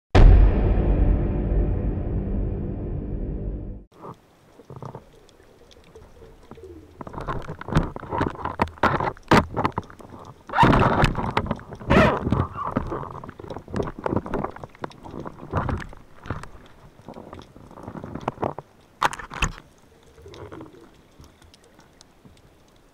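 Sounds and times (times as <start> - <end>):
underwater clicks and knocks: 4.6 - 22.4.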